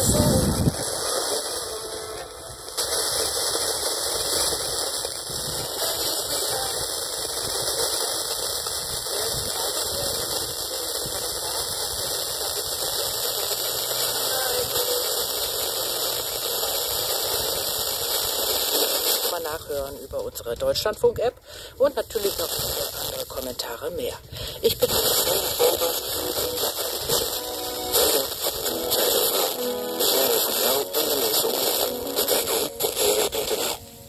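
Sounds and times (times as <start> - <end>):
faint radio programme audio: 0.0 - 2.9, 5.7 - 6.9, 13.8 - 15.3, 24.6 - 34.0
radio static hiss: 0.0 - 34.0.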